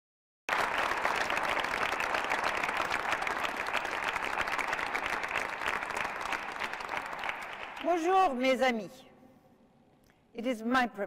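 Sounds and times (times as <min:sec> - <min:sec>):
audience applauding: 0:00.5 - 0:08.1.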